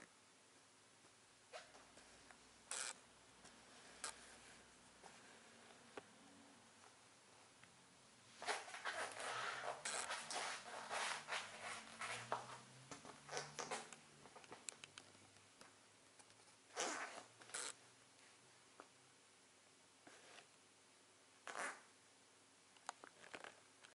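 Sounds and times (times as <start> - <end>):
fabric and boots rustling: 8.3 - 12.8.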